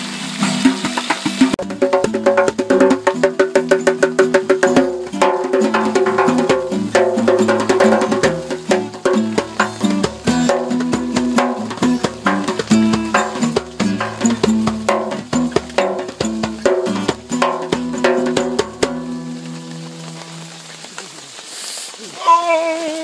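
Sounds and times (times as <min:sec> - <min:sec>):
percussion strokes: 0:00.0 - 0:21.0
held melody: 0:01.5 - 0:20.9.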